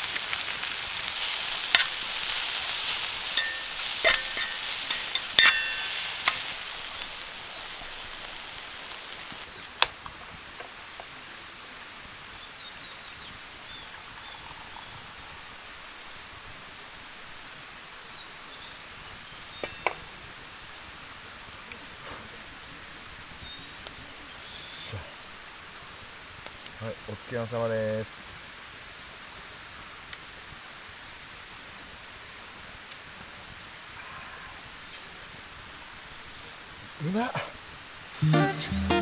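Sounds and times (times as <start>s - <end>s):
food sizzling in a frying pan: 0.0s - 9.8s, 12.0s - 20.7s
faint outdoor background: 0.0s - 39.0s
metal tongs clicking on pan: 3.3s - 6.5s.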